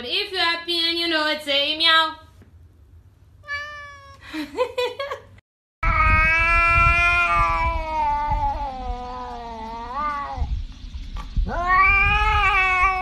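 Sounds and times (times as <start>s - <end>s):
cat yowling: 3.4s - 4.2s, 5.8s - 10.5s, 11.5s - 13.0s.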